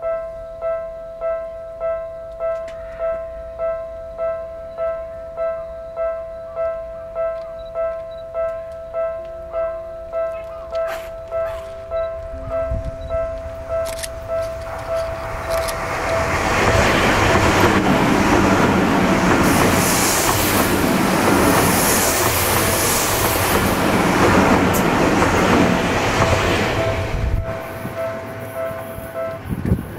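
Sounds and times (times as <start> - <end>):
warning bell ringing: 0.0 - 16.6, 22.6 - 29.6
train wheels on rail: 10.1 - 29.9.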